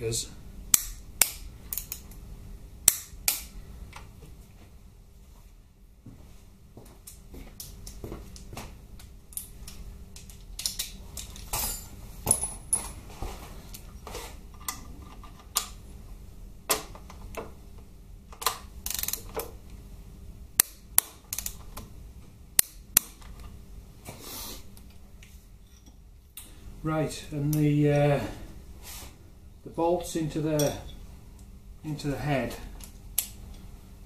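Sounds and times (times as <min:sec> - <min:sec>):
ratchet clicking: 0:18.9 - 0:19.2.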